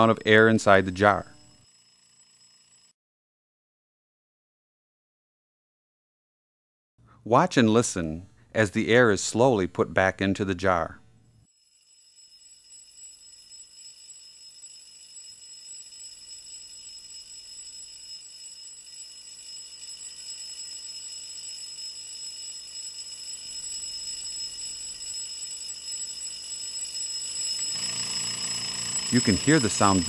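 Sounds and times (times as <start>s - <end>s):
electric bell ringing: 11.6s - 30.0s.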